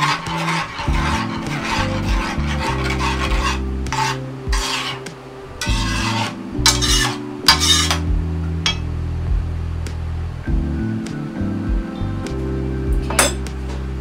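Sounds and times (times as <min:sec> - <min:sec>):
spoon scraping metal frying pan: 0:00.0 - 0:08.1, 0:08.7 - 0:08.9.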